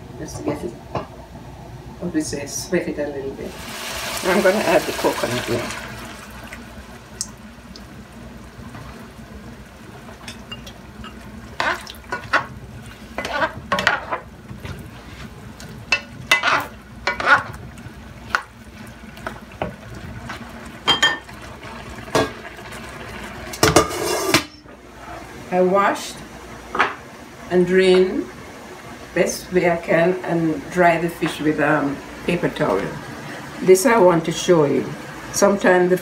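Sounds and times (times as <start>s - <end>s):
pan sizzling: 3.4s - 24.6s
spatula scraping a pan: 11.6s - 14.2s, 16.3s - 17.6s, 23.8s - 24.4s.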